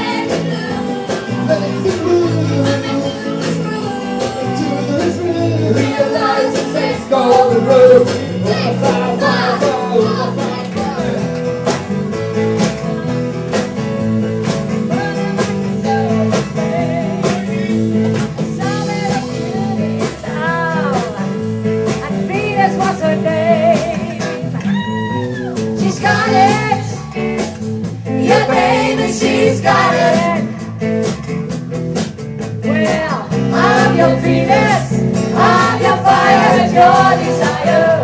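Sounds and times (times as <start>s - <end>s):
women singing: 0.0s - 11.2s, 14.9s - 17.5s, 18.5s - 21.4s, 22.0s - 24.4s, 25.8s - 27.1s, 28.1s - 30.6s, 32.6s - 38.0s
drum kit beat: 0.0s - 38.0s
electric guitar: 0.0s - 38.0s
strummed acoustic guitar: 25.8s - 38.0s.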